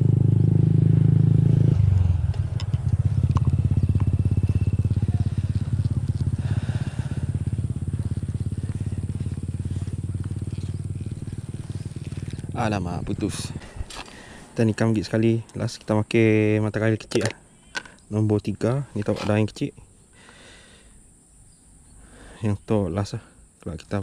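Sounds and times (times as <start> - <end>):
motorcycle engine running: 0.0 - 14.4.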